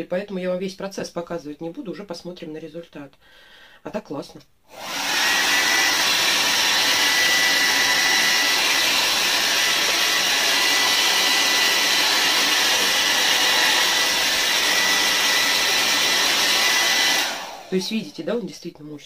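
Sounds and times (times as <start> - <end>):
hair dryer blowing air: 4.7 - 18.4.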